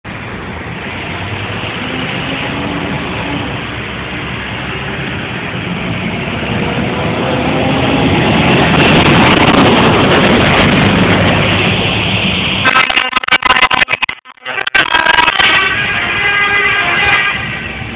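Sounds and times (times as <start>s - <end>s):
diesel truck engine running: 0.1s - 12.6s.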